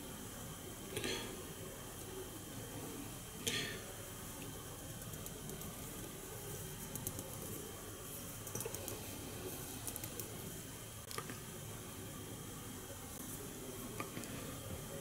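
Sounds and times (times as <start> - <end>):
small ticks and rustling: 4.4 - 11.4.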